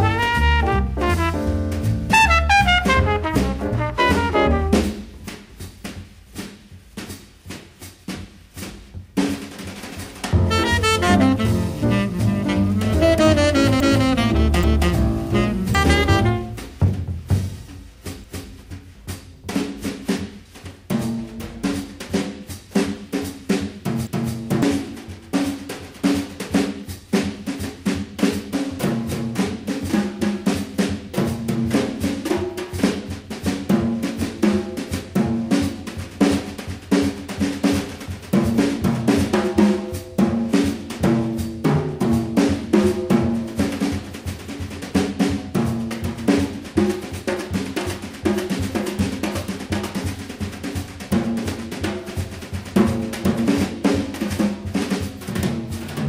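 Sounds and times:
bass line: 0.0s - 5.0s, 10.4s - 16.8s
busy drum kit: 0.0s - 56.0s.

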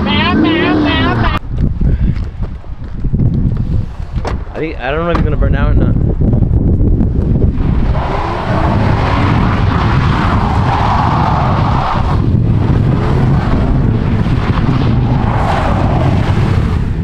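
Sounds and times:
truck engine revving: 0.0s - 1.4s, 7.4s - 17.0s
tyres squealing on asphalt: 7.6s - 16.4s.

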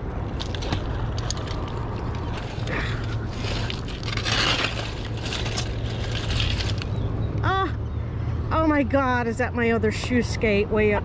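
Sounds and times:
metal frame scraping on concrete: 2.2s - 6.9s.

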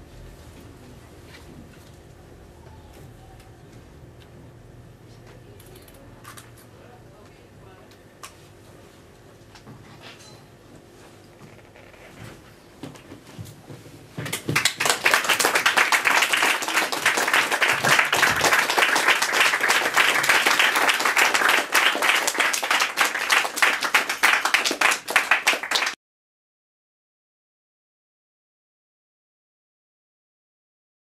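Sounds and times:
audience applauding: 14.3s - 26.0s.

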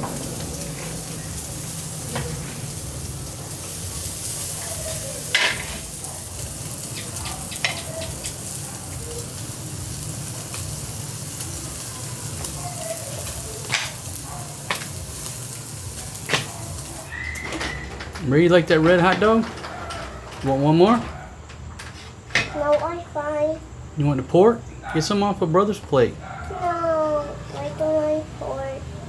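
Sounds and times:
meat sizzling on a grill: 0.0s - 21.1s.

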